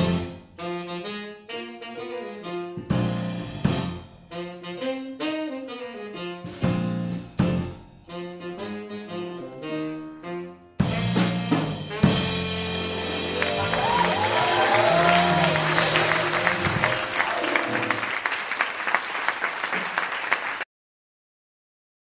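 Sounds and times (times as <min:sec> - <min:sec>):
jazz combo playing: 0:00.0 - 0:18.9
audience applause: 0:13.1 - 0:20.7.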